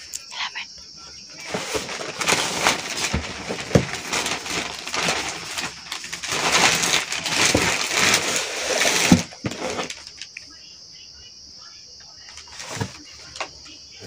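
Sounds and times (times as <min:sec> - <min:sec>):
plastic bag rustling: 0:01.3 - 0:10.3, 0:12.3 - 0:14.0.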